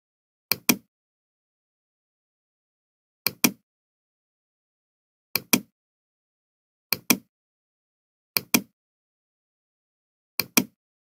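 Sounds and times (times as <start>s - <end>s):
mouse button clicking: 7.0s - 7.3s, 8.4s - 8.7s, 10.4s - 10.8s.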